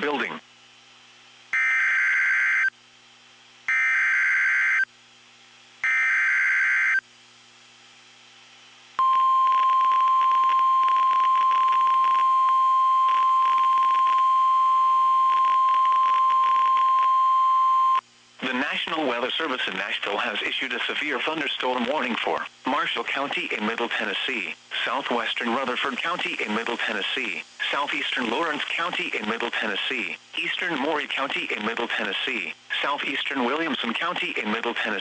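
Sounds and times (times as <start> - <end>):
steady warning alarm tone: 1.6 - 2.7, 3.7 - 4.8, 5.8 - 7.0
radio static crackling: 9.6 - 14.3, 18.4 - 35.0.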